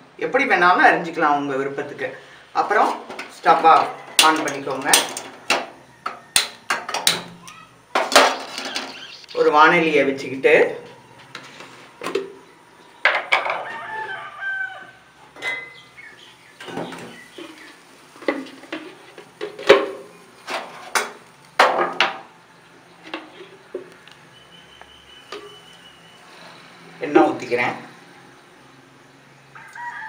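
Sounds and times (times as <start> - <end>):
rooster crowing: 3.6 - 7.1, 10.8 - 15.9, 29.4 - 30.0
chickens clucking: 7.5 - 9.5, 10.8 - 21.6.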